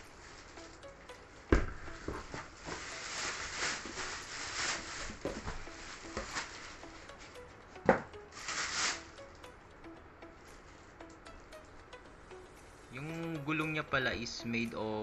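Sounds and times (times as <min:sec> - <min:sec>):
plastic wrapping rustling: 0:00.0 - 0:09.5.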